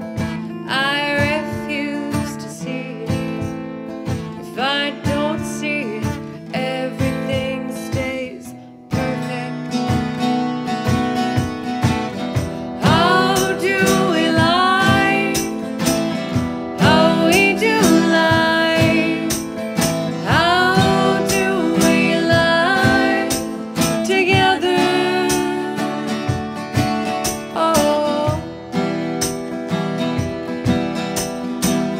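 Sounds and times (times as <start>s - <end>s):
acoustic guitars strummed: 0.0s - 31.9s
women singing: 0.6s - 3.7s, 4.4s - 9.8s, 12.8s - 26.4s, 27.4s - 28.5s.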